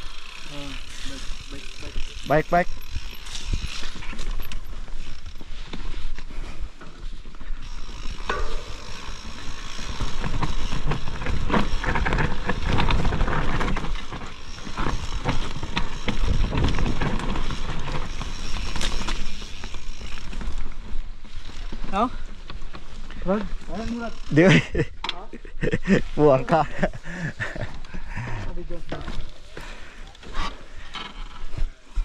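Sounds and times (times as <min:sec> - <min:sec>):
bike knocks and rattles: 0:00.0 - 0:24.4.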